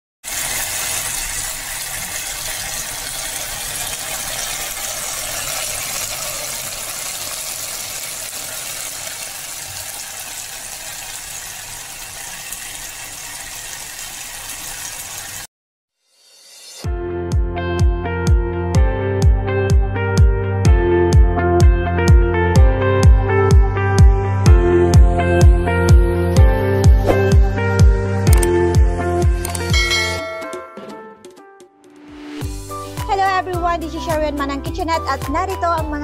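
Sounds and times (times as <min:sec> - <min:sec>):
food sizzling in a frying pan: 0:00.2 - 0:15.5.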